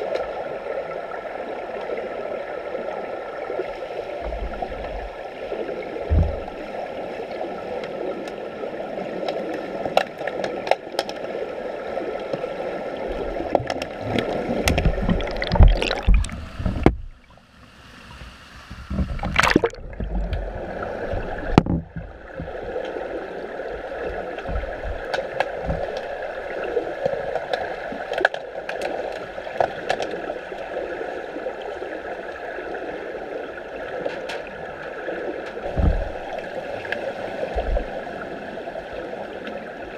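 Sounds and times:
underwater clicks and knocks: 6.0 - 6.6, 13.2 - 17.2, 18.8 - 23.0, 24.0 - 26.4, 27.0 - 30.2, 35.4 - 36.4
splashing at water surface: 14.6 - 16.8, 19.2 - 20.2.

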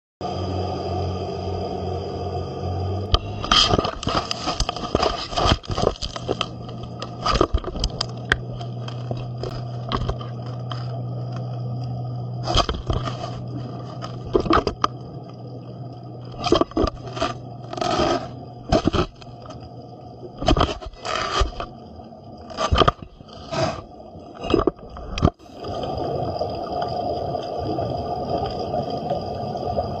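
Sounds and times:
steady low hum: 0.2 - 30.0
underwater hiss and gurgle: 0.2 - 30.0
shark teeth scraping on camera: 3.2 - 11.5, 12.4 - 14.9, 16.4 - 19.6, 20.4 - 21.8, 22.5 - 24.8
shark teeth scraping camera housing: 20.4 - 21.7.

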